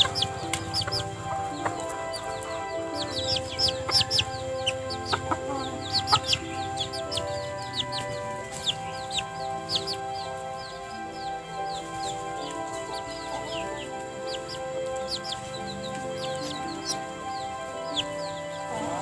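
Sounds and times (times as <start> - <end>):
background music with held notes: 0.0 - 19.0
chick peeping: 0.0 - 19.0.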